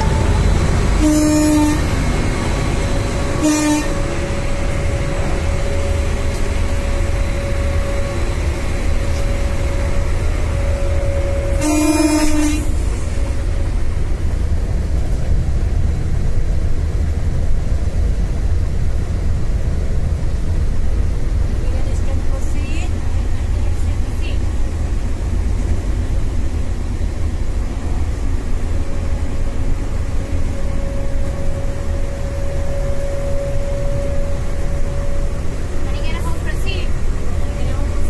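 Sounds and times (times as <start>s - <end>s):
train horn blasts: 0.0s - 13.8s, 28.8s - 38.0s
locomotive cab running rumble: 0.0s - 38.0s.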